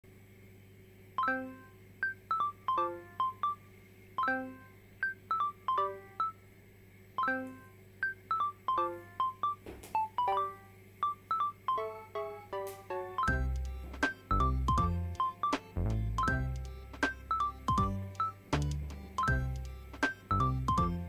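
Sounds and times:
plucked notes melody: 11.7 - 21.0.

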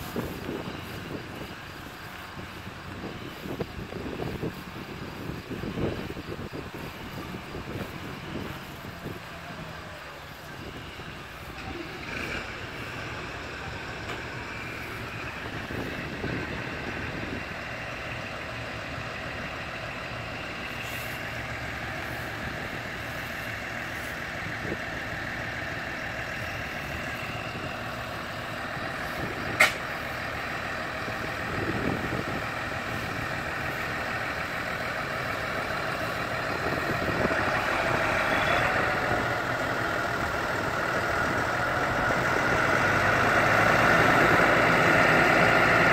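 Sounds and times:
tractor engine running: 0.0 - 45.9
sharp click: 29.6 - 29.8.

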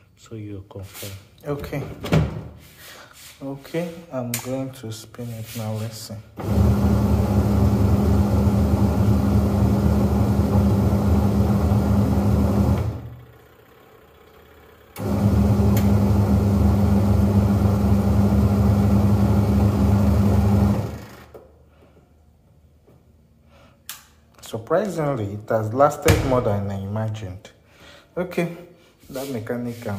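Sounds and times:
washing machine motor humming: 6.4 - 21.3.

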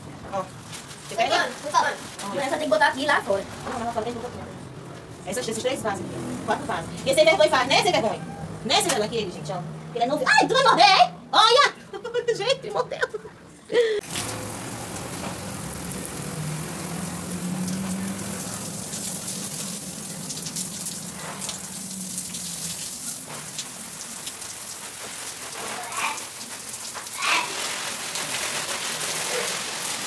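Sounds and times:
hose spraying water on leaves: 0.3 - 4.3, 14.0 - 30.0.

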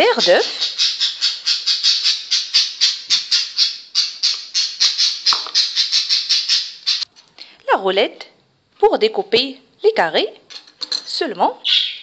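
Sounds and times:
rhythmic shaker rattling: 0.0 - 7.1.

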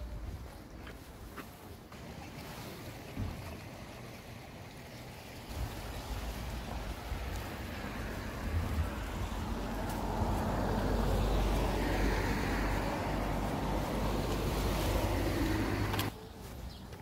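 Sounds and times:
outdoor rush: 5.4 - 17.0
wind buffeting microphone: 5.5 - 15.9.

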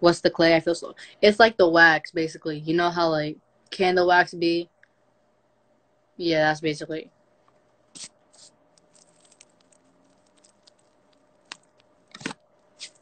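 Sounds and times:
faint steady hum: 0.0 - 13.0
small rustles: 7.4 - 13.0.

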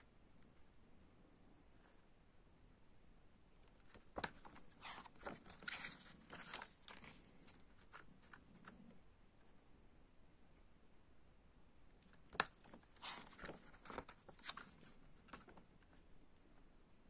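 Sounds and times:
paper rustling and crinkling: 3.8 - 8.8, 12.2 - 15.7.

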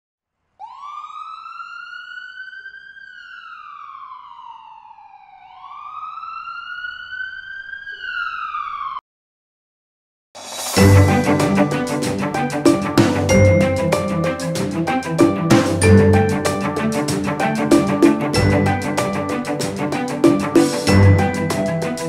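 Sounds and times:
siren wailing: 0.6 - 9.0
music: 10.4 - 22.0.

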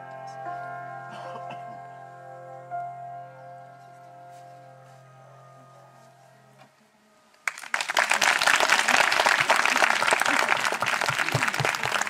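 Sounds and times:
cimbalom chord ringing: 0.0 - 7.2
audience applause: 7.4 - 12.0.

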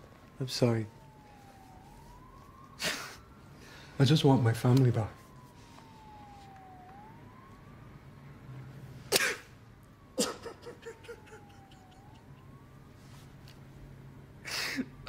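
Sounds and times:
distant siren wailing: 0.0 - 15.0
man sobbing: 2.8 - 3.3, 10.2 - 12.6, 14.4 - 15.0.

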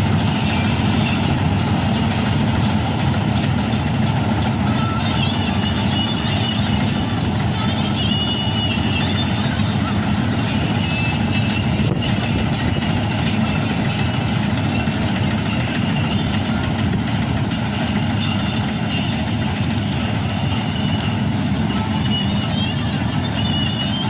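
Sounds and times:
combine harvester engine droning: 0.0 - 24.0.

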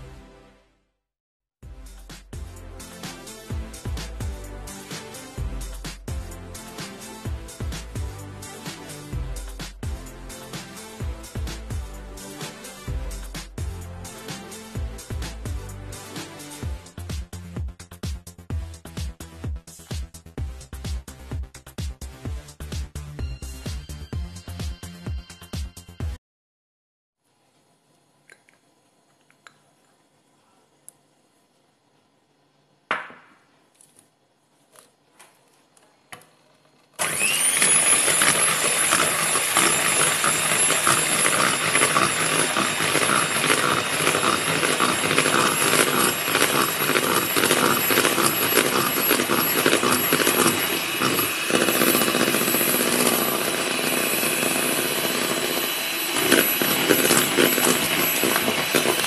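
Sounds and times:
electric hand mixer whipping: 37.0 - 59.0.

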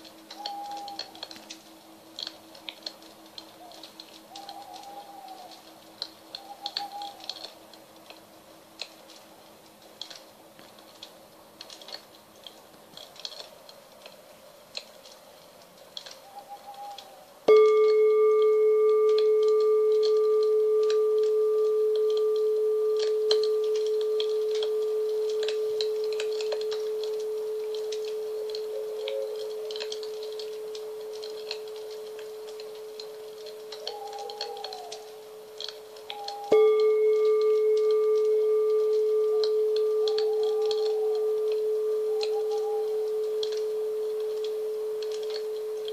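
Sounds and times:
singing bowl hum: 0.0 - 9.5, 16.2 - 45.9
campfire crackling and popping: 0.0 - 45.9
fainter higher ring: 17.5 - 45.9.

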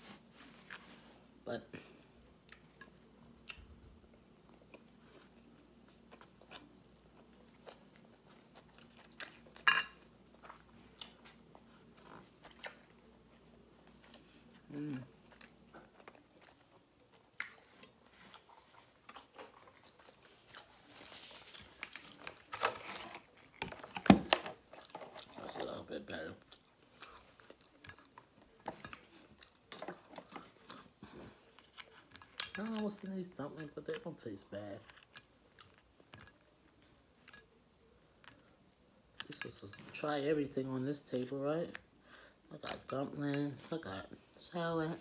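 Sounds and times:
person chewing food: 1.8 - 32.9, 34.8 - 39.4.

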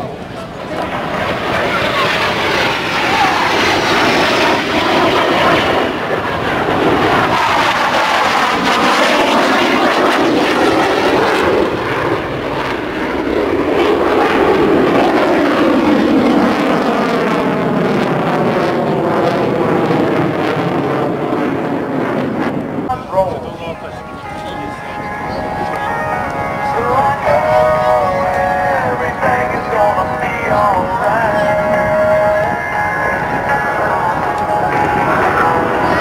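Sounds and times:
jet engines passing overhead: 0.0 - 36.0.

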